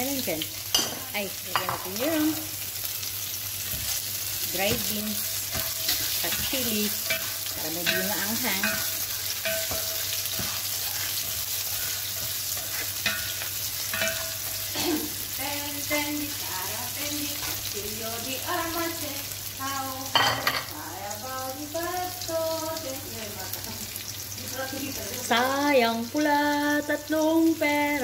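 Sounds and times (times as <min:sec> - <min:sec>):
food sizzling in hot oil: 0:00.0 - 0:28.0
spatula stirring in pan: 0:00.7 - 0:18.0.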